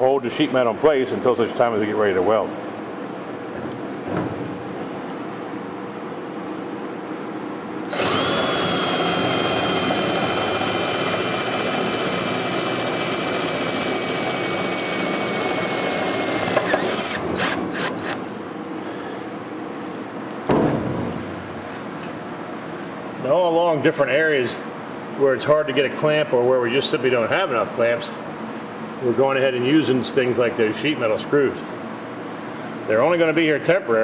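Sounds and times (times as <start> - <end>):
power drill whining: 7.9 - 18.2.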